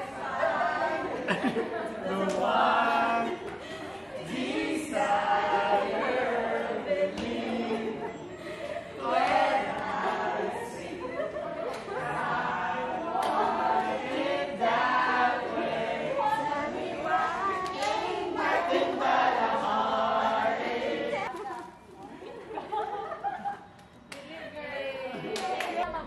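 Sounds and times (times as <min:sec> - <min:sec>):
group of voices singing together: 0:00.0 - 0:21.3.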